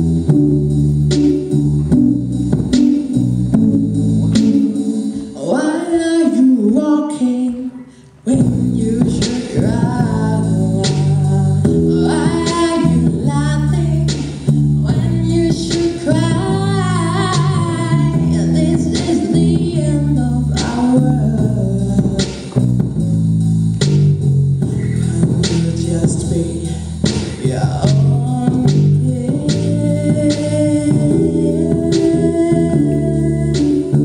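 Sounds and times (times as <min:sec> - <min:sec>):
electric bass guitar: 0:00.0 - 0:05.3, 0:08.3 - 0:34.0
woman singing into a microphone: 0:04.8 - 0:22.2, 0:28.0 - 0:34.0.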